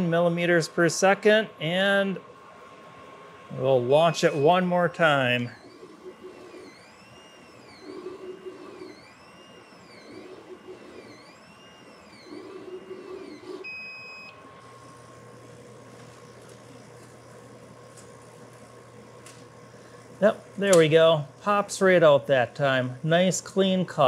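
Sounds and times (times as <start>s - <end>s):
laser cutter motors whining: 0.0s - 24.0s
machine beep: 4.0s - 14.4s.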